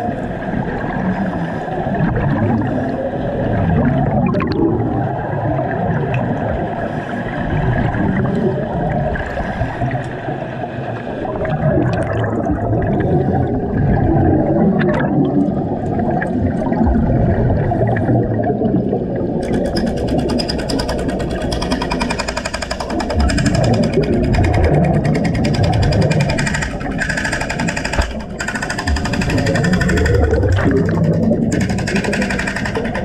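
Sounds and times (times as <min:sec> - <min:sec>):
underwater bubbling: 0:00.0 - 0:33.0
underwater jackhammer rattling: 0:19.4 - 0:33.0.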